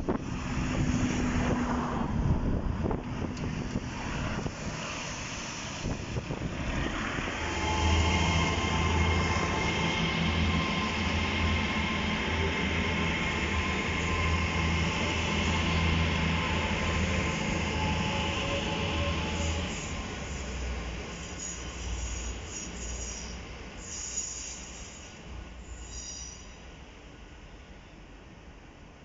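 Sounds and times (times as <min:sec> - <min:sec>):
wind noise on microphone: 0:00.0 - 0:07.8
train engine hum with whine: 0:00.0 - 0:29.0.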